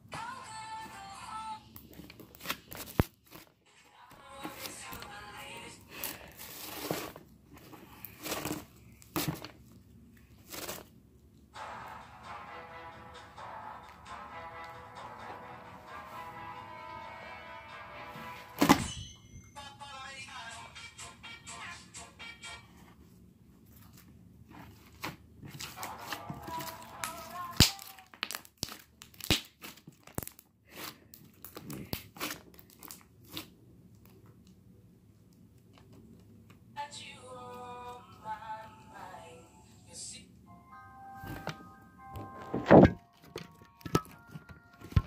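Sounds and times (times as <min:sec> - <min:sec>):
slime squishing and crackling: 0:24.6 - 0:34.1.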